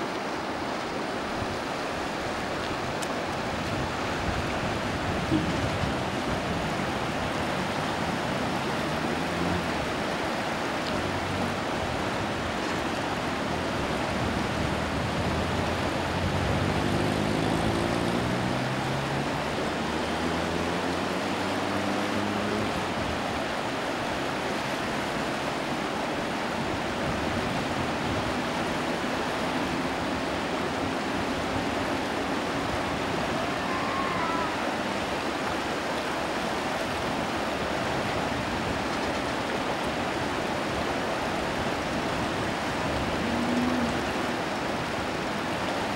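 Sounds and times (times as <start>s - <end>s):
river water rushing: 0.0s - 45.9s
engine running up in pitch: 16.0s - 22.7s, 42.9s - 44.6s.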